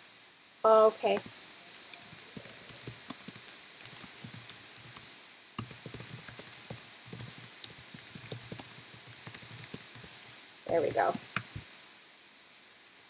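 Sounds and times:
typing on computer keyboard: 1.7 - 11.6.

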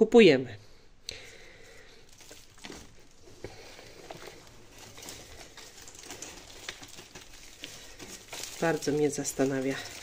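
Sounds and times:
soil crumbling and rustling: 2.0 - 10.0.

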